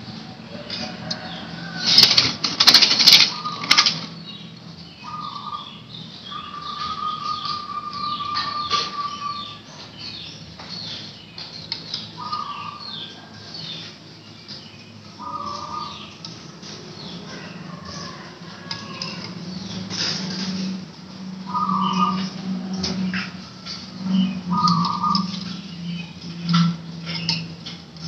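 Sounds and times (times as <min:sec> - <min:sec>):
dove flapping wings: 0:02.0 - 0:04.0
small birds chirping: 0:03.2 - 0:28.0.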